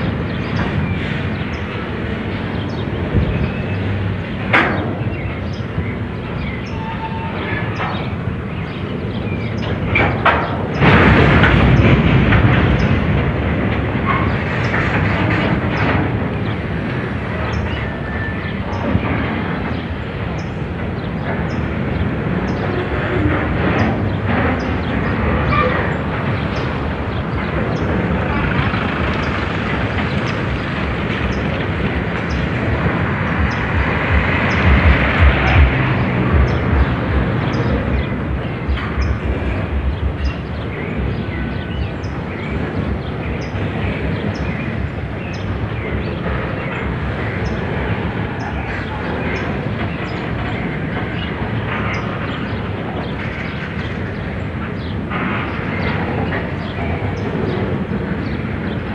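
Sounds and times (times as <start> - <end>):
train wheels rumbling and rattling: 0.0 - 58.9.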